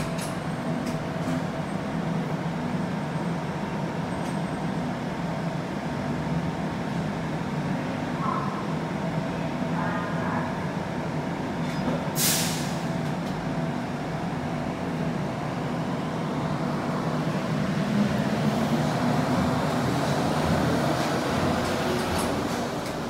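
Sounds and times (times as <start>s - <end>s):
light rail vehicle running hum: 0.0s - 23.0s
sharp hiss of air: 12.2s - 12.9s.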